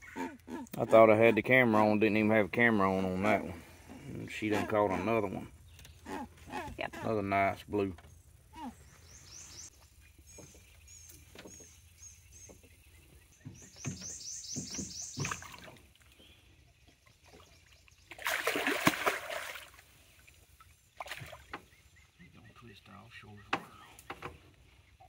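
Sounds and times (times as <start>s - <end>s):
fish thrashing and splashing: 17.2s - 20.2s, 21.0s - 21.5s.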